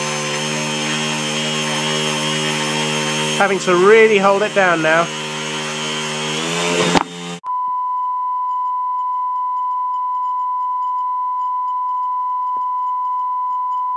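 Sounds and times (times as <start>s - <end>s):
drone propellers whining: 0.0s - 7.4s.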